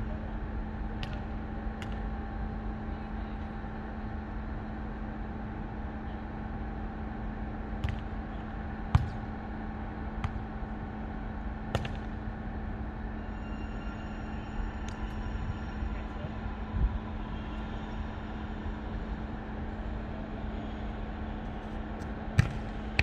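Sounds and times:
outdoor hum: 0.0 - 23.0
hands slapping volleyball: 1.0 - 2.1, 7.8 - 8.2, 8.9 - 9.3, 10.2 - 10.7, 11.7 - 12.2, 22.4 - 23.0.

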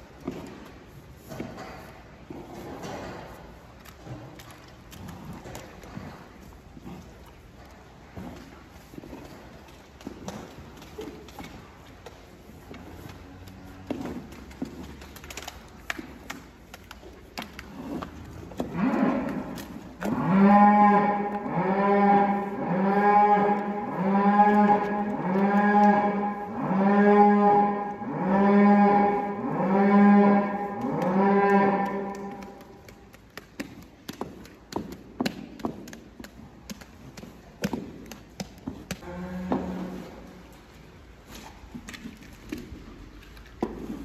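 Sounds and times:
cow mooing: 20.1 - 32.4.

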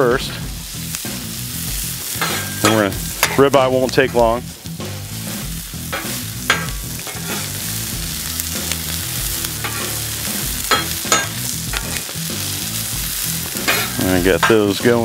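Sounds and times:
onions sizzling in oil: 0.0 - 15.0
metal spatula scraping griddle: 2.1 - 4.4, 5.3 - 12.2, 12.9 - 14.9.

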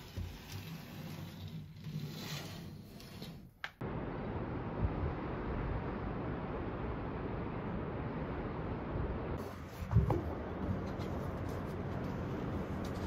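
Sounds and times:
curtain rustling and sliding: 0.0 - 3.6
steady rushing noise: 3.8 - 13.0.

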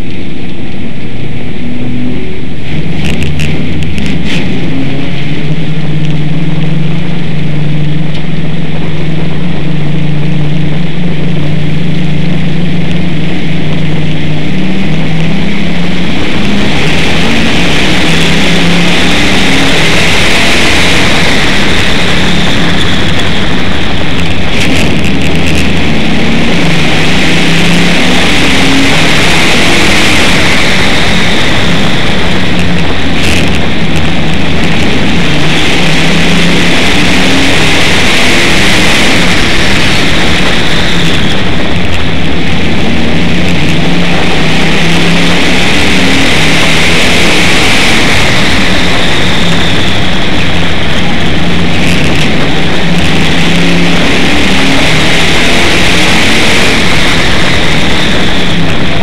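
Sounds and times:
harsh rushing noise: 0.0 - 59.0
race car engine: 0.0 - 59.0.

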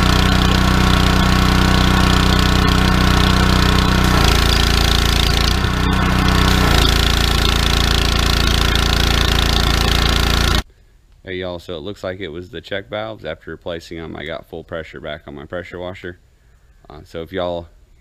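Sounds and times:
pressure washer engine running: 0.0 - 10.6
water spray hissing: 0.0 - 10.6.

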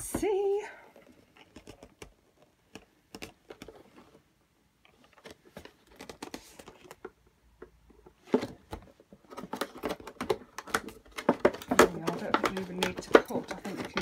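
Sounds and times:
cardboard crackle: 4.9 - 7.2
fingers handling cardboard box: 4.9 - 14.0.

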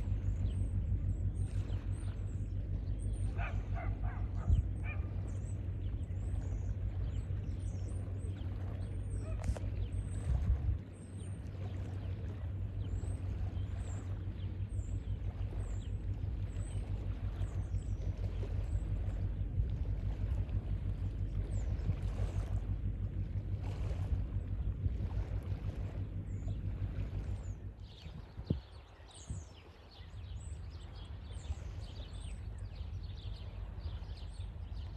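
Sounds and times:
small birds chirping: 0.0 - 19.5
lower bird calls: 0.0 - 19.6
wind buffeting microphone: 0.0 - 34.9.

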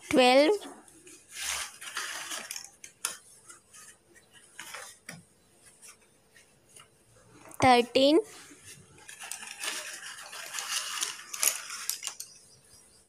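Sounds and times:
slate pencils clattering: 1.4 - 3.9, 8.8 - 12.6.

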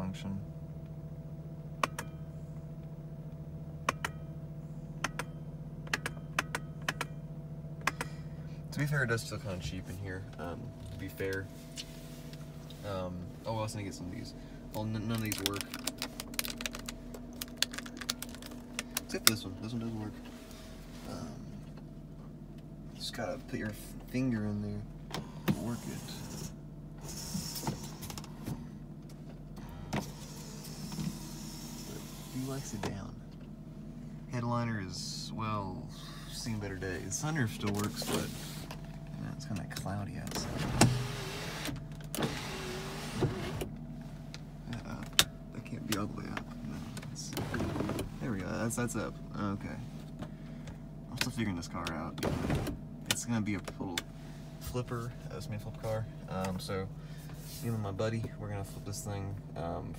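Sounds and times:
car engine idling: 0.0 - 59.9
small motor humming: 40.4 - 43.7.

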